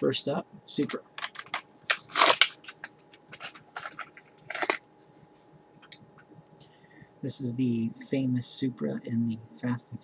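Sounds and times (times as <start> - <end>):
crackling plastic packaging: 1.2 - 4.8.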